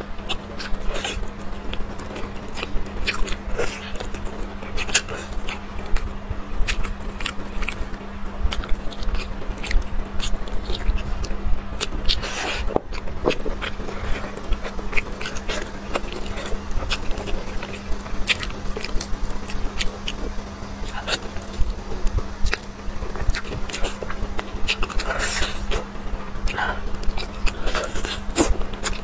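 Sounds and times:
chewing and smacking: 0:00.0 - 0:29.0
steady low hum: 0:00.0 - 0:29.0.

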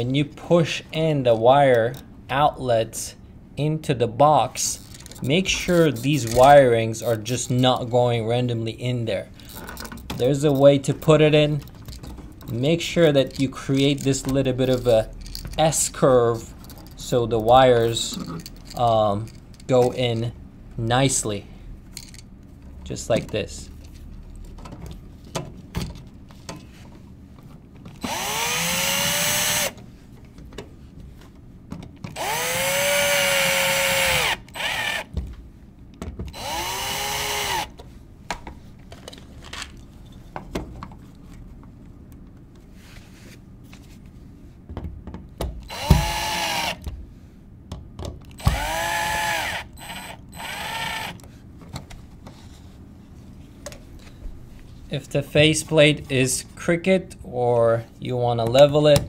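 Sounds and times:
electric drill spinning: 0:28.0 - 0:29.8, 0:32.2 - 0:35.1, 0:36.3 - 0:37.8, 0:45.7 - 0:46.8, 0:48.4 - 0:51.2.

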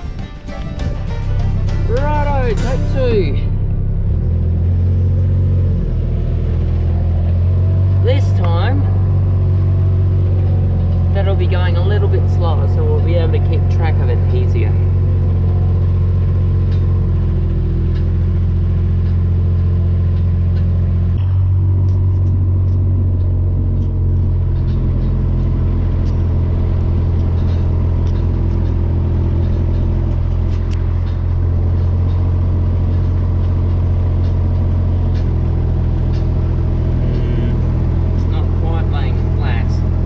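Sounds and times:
vehicle engine deep drone: 0:00.0 - 0:40.0
light rattles: 0:06.4 - 0:40.0.

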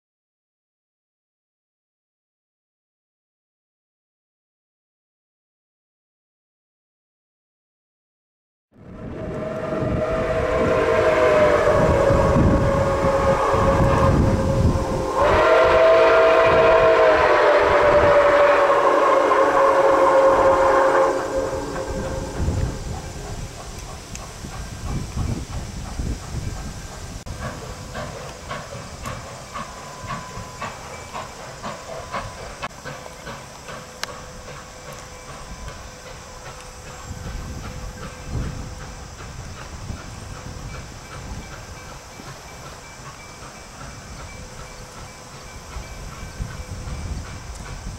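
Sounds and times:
steam locomotive whistle blasts: 0:09.0 - 0:24.2
steam hiss: 0:09.2 - 0:47.9.

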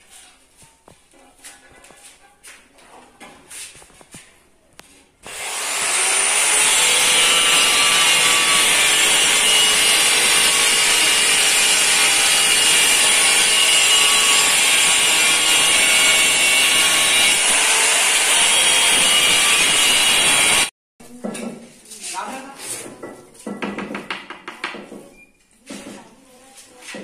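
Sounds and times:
power tool motor whining: 0:05.2 - 0:20.7.

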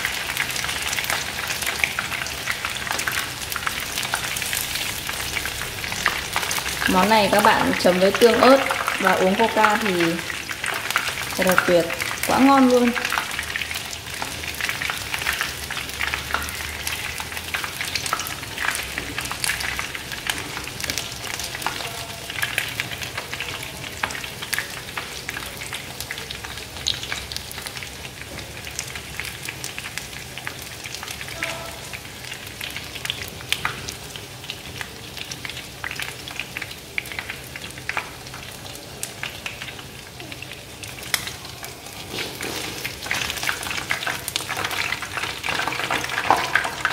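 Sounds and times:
chicken frying in oil: 0:00.0 - 0:46.9.

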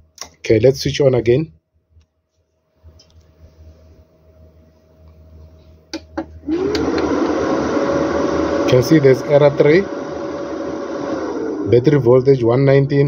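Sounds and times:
faint electrical hum: 0:00.0 - 0:13.0
cooling fan whirring: 0:02.8 - 0:13.0.

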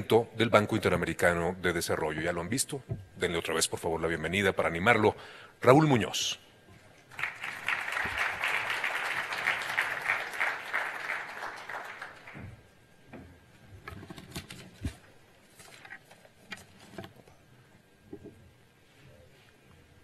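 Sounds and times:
audience applause: 0:07.1 - 0:12.6
papers rustling at a lectern: 0:13.8 - 0:17.3.

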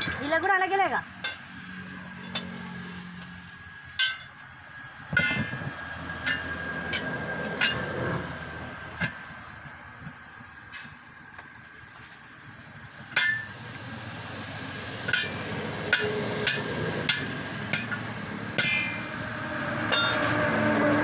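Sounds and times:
sledgehammer clanging on steel rim: 0:04.0 - 0:04.4, 0:05.2 - 0:05.6, 0:13.2 - 0:13.5, 0:15.1 - 0:18.0, 0:18.6 - 0:19.0, 0:19.9 - 0:20.3.

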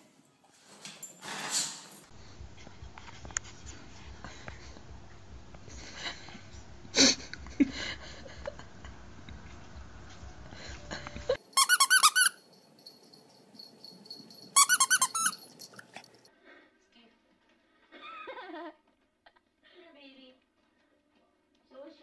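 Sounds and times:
squeaky toy squeaking: 0:11.4 - 0:12.4, 0:14.5 - 0:15.6.

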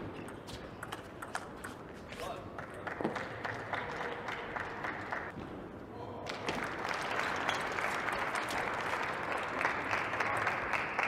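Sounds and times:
audience applause: 0:02.8 - 0:05.3, 0:06.6 - 0:11.0.

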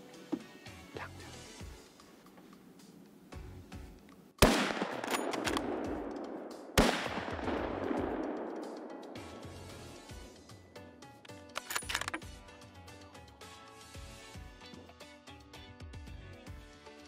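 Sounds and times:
rifle shots with echo: 0:04.4 - 0:09.6.

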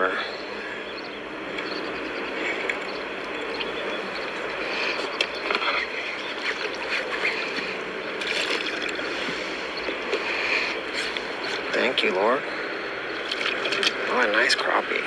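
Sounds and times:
steady rushing background: 0:00.0 - 0:15.0
fish splashing in water: 0:06.2 - 0:09.1, 0:13.2 - 0:14.0.

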